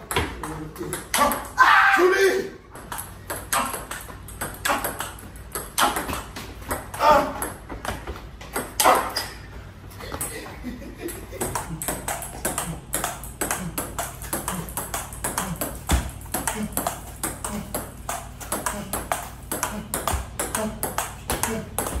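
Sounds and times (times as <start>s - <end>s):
table tennis ball clicking: 2.8s - 7.6s, 11.4s - 22.0s.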